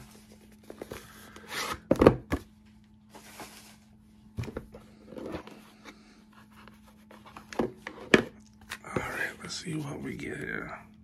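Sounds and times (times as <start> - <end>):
cardboard rustling and sliding: 3.1 - 8.1.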